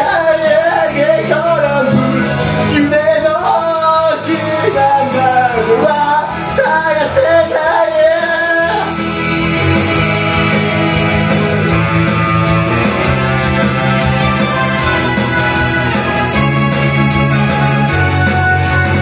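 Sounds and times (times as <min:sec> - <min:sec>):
man singing into microphone: 0:00.0 - 0:10.9
pop backing track: 0:00.0 - 0:19.0.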